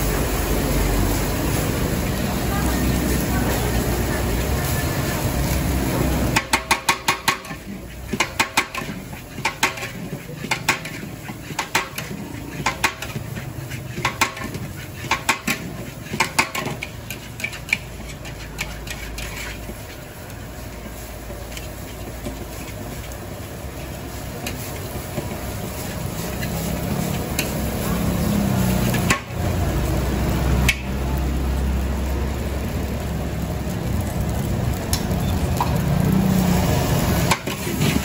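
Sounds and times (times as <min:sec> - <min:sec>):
metal spatula clanking on a wok: 0:06.3 - 0:19.8.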